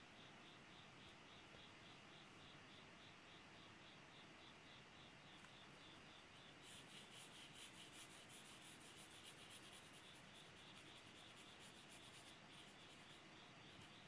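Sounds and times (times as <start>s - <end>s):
pencil scratching on paper: 6.6s - 14.0s.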